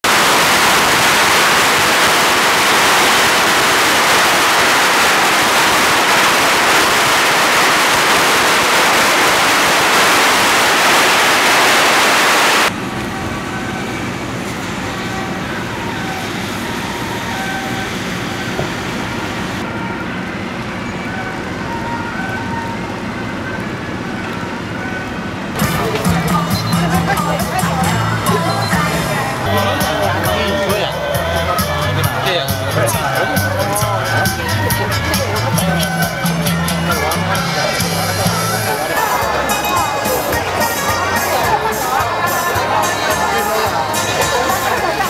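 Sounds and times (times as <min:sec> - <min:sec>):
firecrackers crackling: 0:00.0 - 0:12.8.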